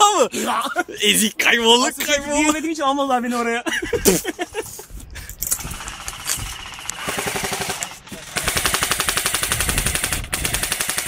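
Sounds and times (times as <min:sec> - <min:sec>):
airsoft guns firing full auto: 0:05.6 - 0:11.0.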